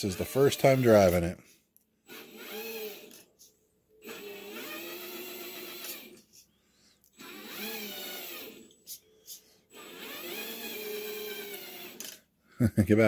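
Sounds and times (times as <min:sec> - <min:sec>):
electric motor and gears whining: 0:00.0 - 0:01.4, 0:02.0 - 0:03.3, 0:04.0 - 0:06.4, 0:07.1 - 0:12.3.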